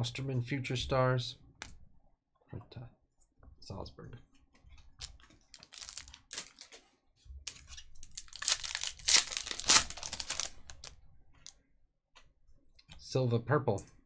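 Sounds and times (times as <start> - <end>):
foil wrapper tearing and crinkling: 5.0 - 6.9, 7.5 - 10.9.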